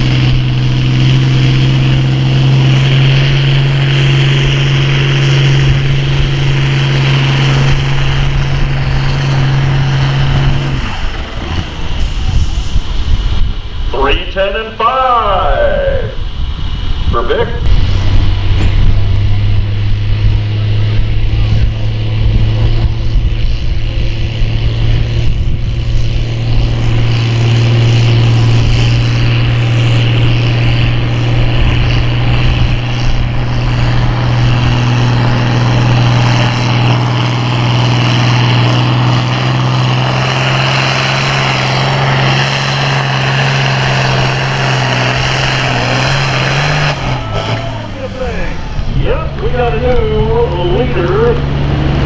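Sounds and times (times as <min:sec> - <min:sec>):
diesel tractor engine drone: 0:00.0 - 0:52.0.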